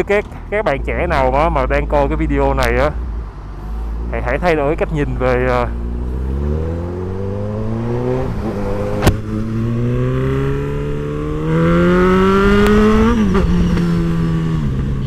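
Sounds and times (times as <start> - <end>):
motorcycle engine accelerating: 5.4 - 15.0.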